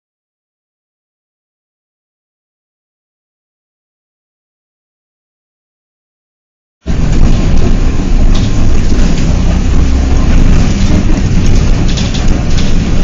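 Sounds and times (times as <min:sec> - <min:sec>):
car road noise rumble: 0:06.9 - 0:13.0.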